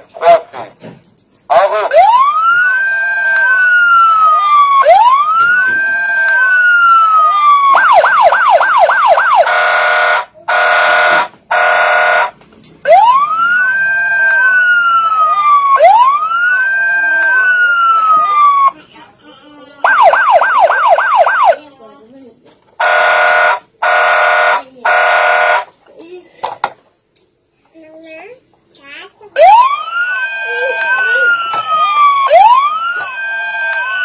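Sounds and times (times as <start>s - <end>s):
toy siren wailing: 1.5s - 12.3s, 12.9s - 18.8s, 19.8s - 21.6s, 29.4s - 34.0s
fast siren yelp: 1.5s - 18.7s, 19.9s - 21.6s, 29.4s - 34.0s
short steady siren tones: 12.9s - 18.7s, 29.4s - 34.0s.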